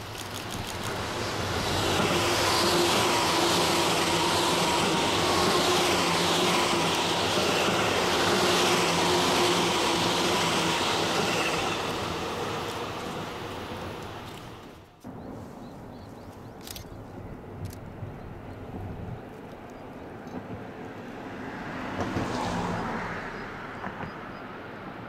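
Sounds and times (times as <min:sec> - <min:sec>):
train motor hum: 0:00.0 - 0:14.8
train wheels on rails: 0:00.0 - 0:22.8.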